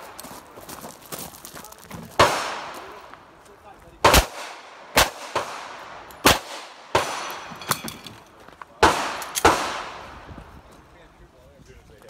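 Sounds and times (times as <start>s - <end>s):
handgun shots: 8.8s - 10.0s.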